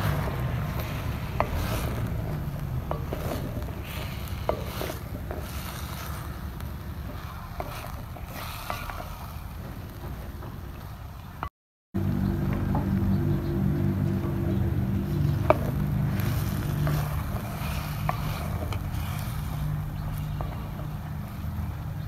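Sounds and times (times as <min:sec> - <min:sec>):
wooden spoon stirring in pot: 0:00.0 - 0:11.4, 0:12.3 - 0:22.0
spoon scraping clay pot: 0:00.1 - 0:09.7, 0:14.9 - 0:21.0
wind rumble on microphone: 0:12.0 - 0:22.0.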